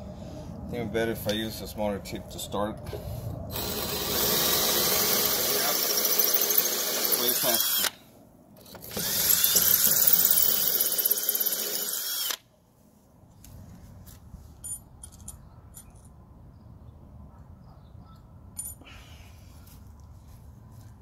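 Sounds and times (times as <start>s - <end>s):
cordless drill boring into brick: 3.5s - 8.0s, 8.6s - 12.4s.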